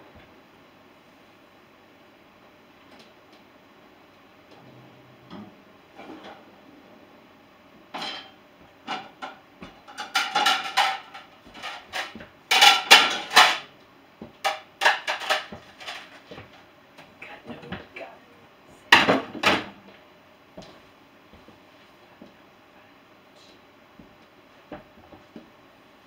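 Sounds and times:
dishes and glasses clinking: 7.9s - 13.7s.

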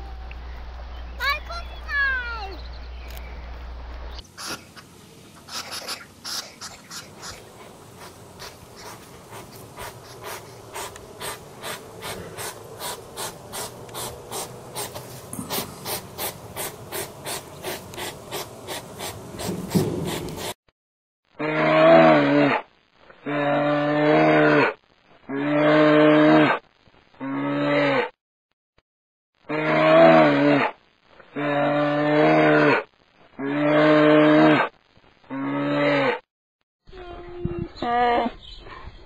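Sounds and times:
low hum: 0.0s - 1.2s, 2.6s - 20.4s
hedgehog sniffing: 4.3s - 20.6s.

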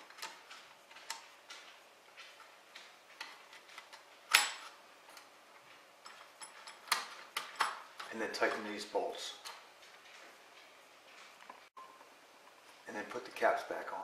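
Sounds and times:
plastic parts clicking and knocking: 0.0s - 8.6s.

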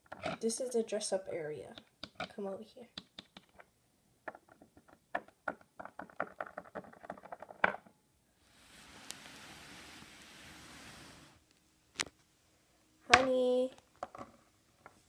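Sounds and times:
plastic toys tapping on wood: 1.7s - 2.3s, 3.0s - 7.8s.

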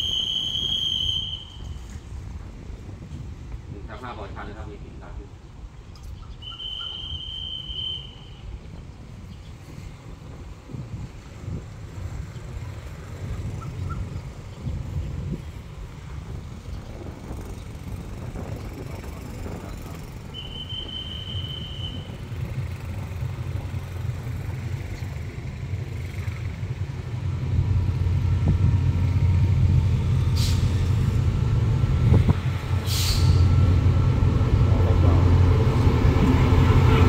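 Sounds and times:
locomotive engine drone: 0.0s - 37.0s
air hisses: 32.8s - 33.5s.

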